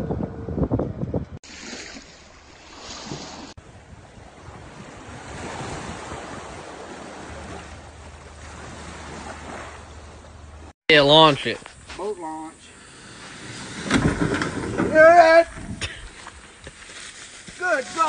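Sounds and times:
wind buffeting microphone: 0.0s - 1.4s, 3.0s - 10.6s, 12.9s - 16.7s
small waves washing onto shore: 1.4s - 10.7s.

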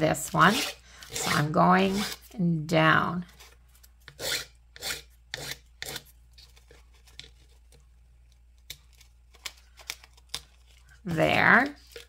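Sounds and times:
nail file scraping wood: 0.3s - 2.2s, 4.1s - 6.0s.

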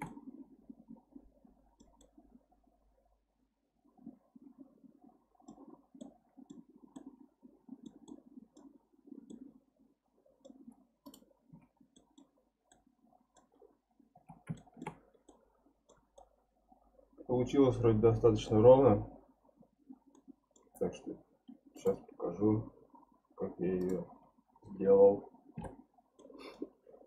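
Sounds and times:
computer mouse clicks: 0.0s - 0.4s, 1.8s - 2.3s, 5.4s - 9.5s, 10.4s - 13.5s, 14.2s - 16.4s, 20.0s - 22.0s, 23.7s - 24.1s, 25.6s - 26.6s.

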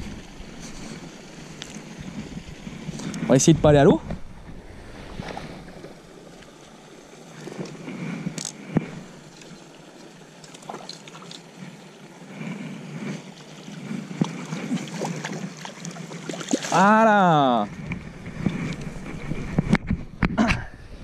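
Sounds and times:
fish splashing in water: 13.1s - 17.0s.

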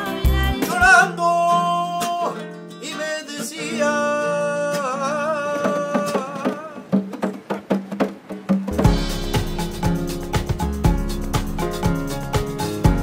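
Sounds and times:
man singing with vibrato: 0.0s - 7.0s
acoustic guitar: 0.0s - 13.0s
song with heavy bass beat: 8.8s - 13.0s.

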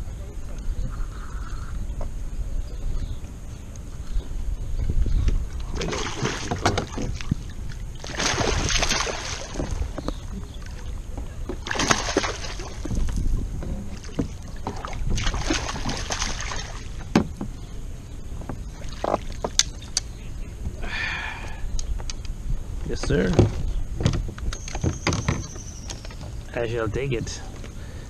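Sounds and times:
fish splashing at water surface: 5.7s - 7.4s, 8.0s - 10.0s, 11.6s - 13.0s, 14.0s - 17.0s.

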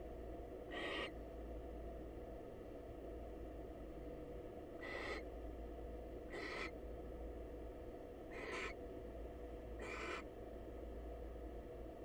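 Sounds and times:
steady low hum: 0.0s - 12.0s
owl hissing calls: 0.7s - 1.1s, 4.8s - 5.2s, 6.3s - 6.7s, 8.3s - 8.7s, 9.8s - 10.2s.

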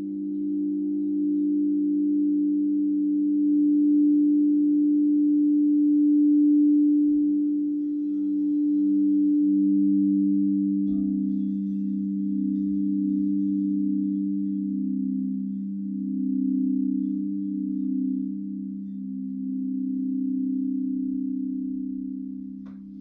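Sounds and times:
singing bowls low tones: 0.0s - 23.0s.

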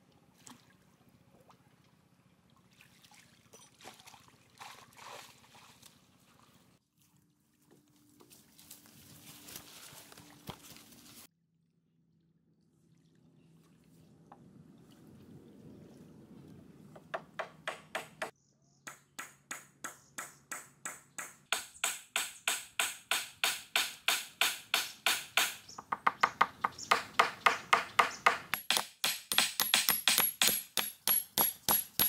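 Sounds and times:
hand tool striking metal: 20.5s - 32.0s.

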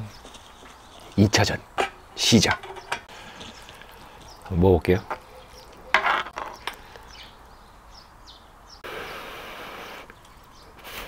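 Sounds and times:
small birds chirping faintly: 0.0s - 11.0s
loud eating sound: 3.1s - 4.4s
steady hiss: 8.8s - 11.0s.

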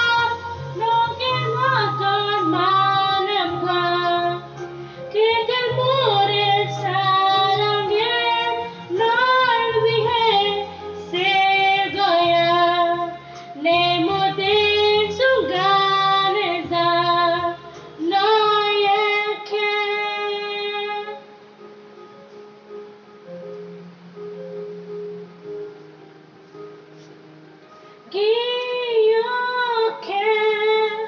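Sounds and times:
girl singing a slow ballad: 0.0s - 21.4s, 28.0s - 31.0s
karaoke backing track: 0.0s - 31.0s.

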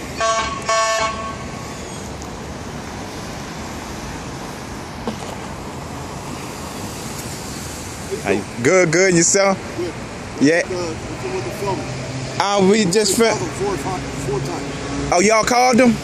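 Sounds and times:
traffic noise from passing cars: 0.0s - 16.0s
car horn toots: 0.2s - 1.5s.

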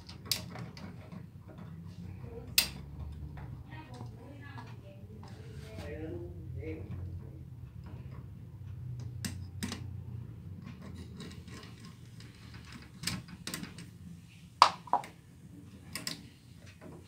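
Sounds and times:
wires knocking: 14.6s - 15.2s.

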